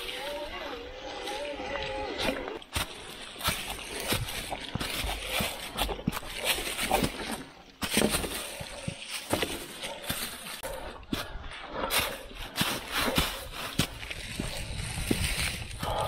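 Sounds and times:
dry leaves crunching underfoot: 0:02.0 - 0:10.8, 0:12.5 - 0:16.0.

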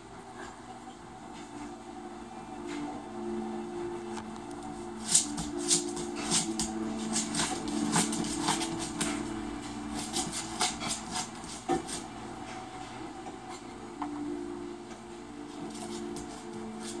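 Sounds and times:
fan base clicking and clattering: 0:05.0 - 0:13.7.

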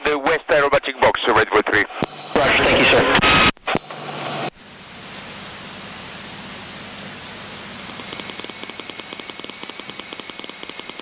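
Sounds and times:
radio transmission: 0:00.0 - 0:04.5
static hiss: 0:04.4 - 0:11.0.

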